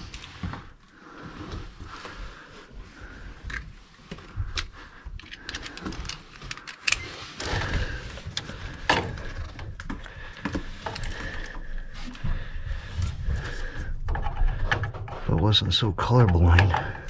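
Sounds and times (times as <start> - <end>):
tools and wires clicking and rattling: 3.4 - 11.6.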